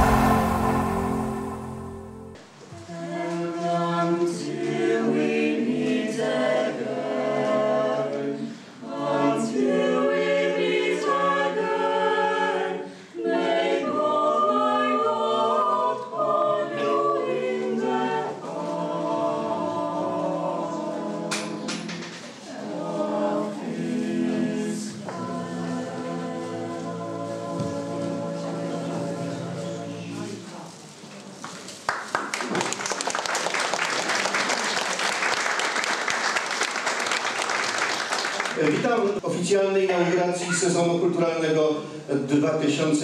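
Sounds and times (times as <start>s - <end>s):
electronic news jingle: 0.0s - 2.4s
choir singing a cappella: 0.0s - 30.7s.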